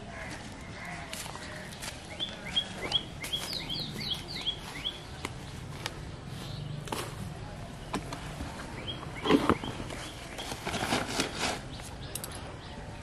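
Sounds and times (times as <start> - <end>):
footsteps on grass: 0.1 - 11.8
bird chirping: 0.7 - 11.0.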